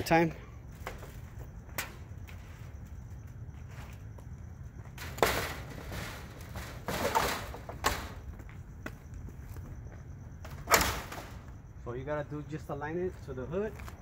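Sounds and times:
grille scraping rattle: 5.0s - 8.2s.

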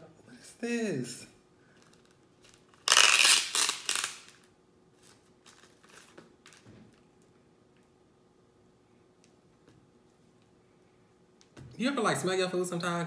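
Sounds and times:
plastic wrap tearing: 1.8s - 6.7s.

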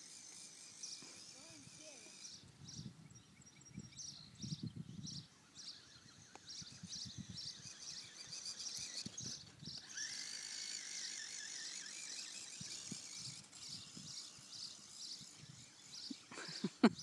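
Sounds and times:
wavering high whine: 5.2s - 16.9s.

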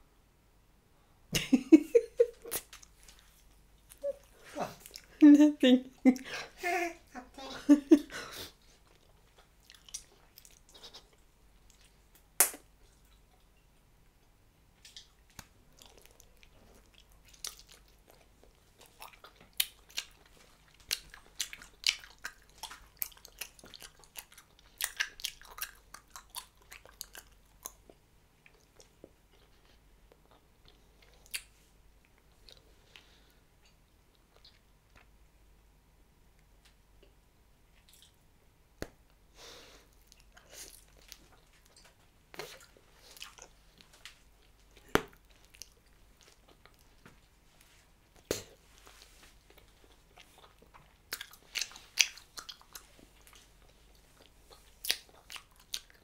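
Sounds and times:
chewing gum clicks and smacks: 8.9s - 13.5s, 14.8s - 29.5s, 37.8s - 38.2s, 39.9s - 47.0s, 49.5s - 56.0s
sharp gum snap: 12.4s - 12.7s.

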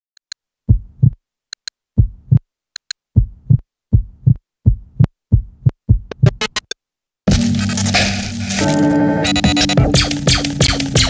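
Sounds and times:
electronic heartbeat thumps: 0.7s - 1.2s, 2.0s - 2.4s, 3.2s - 6.7s, 7.3s - 8.4s, 9.2s - 11.0s.

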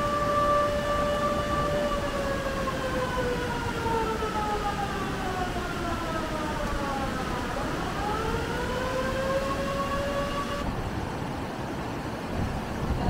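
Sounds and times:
siren wailing: 0.0s - 10.7s
low rushing noise: 0.0s - 13.0s.

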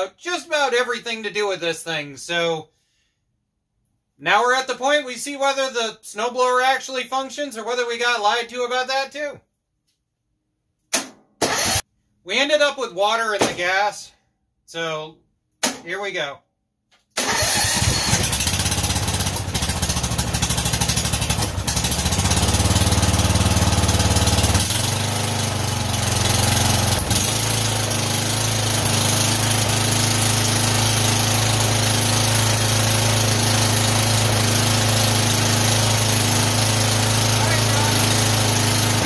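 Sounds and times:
lawn tractor engine running: 11.5s - 11.8s, 17.2s - 39.0s.

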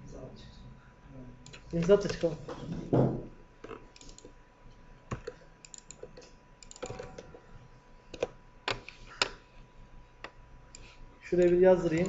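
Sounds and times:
computer keyboard keystrokes: 5.1s - 7.3s.

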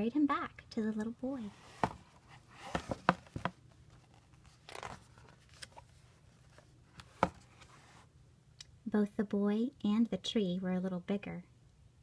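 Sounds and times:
paper page rustling: 1.6s - 8.0s.

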